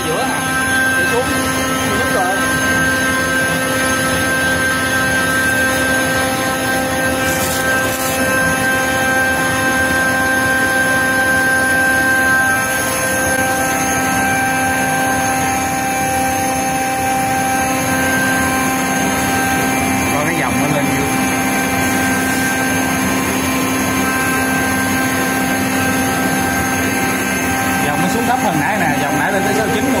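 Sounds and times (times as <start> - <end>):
air compressor droning: 0.0 - 30.0.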